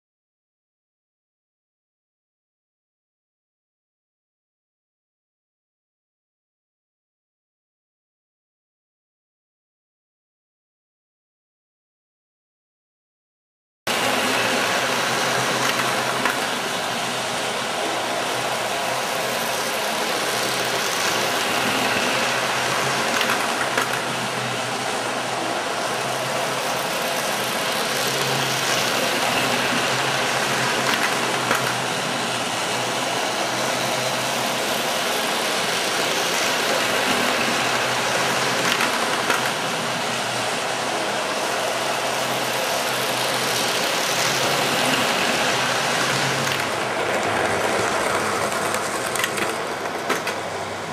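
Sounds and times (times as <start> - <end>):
wheels clicking over rail joints: 13.9 - 40.4, 41.4 - 50.9
model train motor hum: 13.9 - 50.9.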